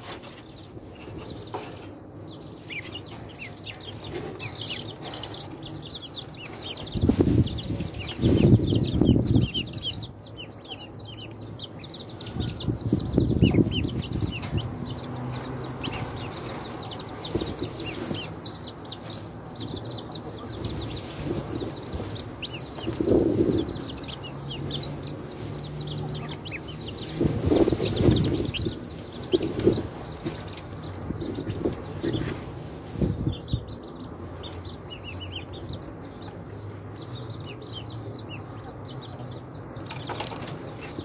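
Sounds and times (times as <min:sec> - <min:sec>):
chicks and ducklings peeping: 0:00.0 - 0:41.0.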